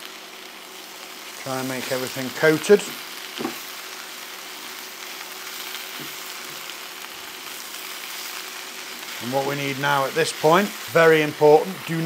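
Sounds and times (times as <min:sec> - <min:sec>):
greens sizzling in a frying pan: 0:00.0 - 0:12.0.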